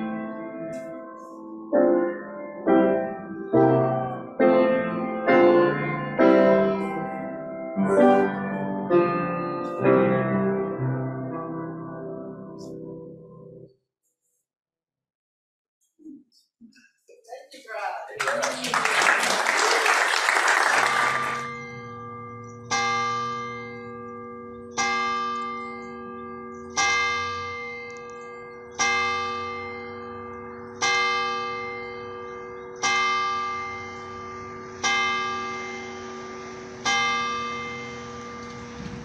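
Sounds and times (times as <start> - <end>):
church bell tolling: 0.0 - 13.6, 21.0 - 39.0
applause: 18.1 - 21.5.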